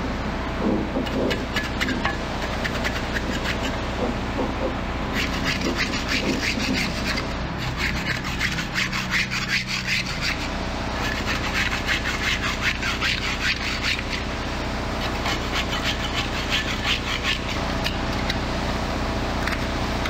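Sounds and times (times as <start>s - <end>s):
scraping barnacles off propeller: 0.7s - 4.3s, 5.1s - 18.4s.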